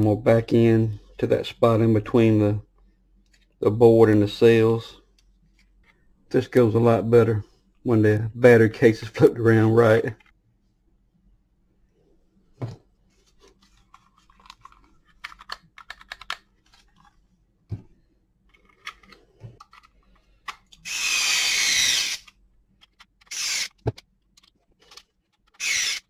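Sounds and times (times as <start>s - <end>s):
cordless screwdriver running: 20.8s - 22.3s, 23.3s - 23.8s, 25.6s - 26.0s.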